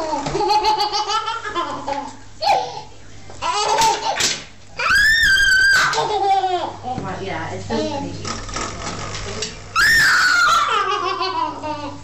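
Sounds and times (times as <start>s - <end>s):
baby laughing and squealing: 0.0s - 4.2s, 4.8s - 6.8s, 9.8s - 12.0s.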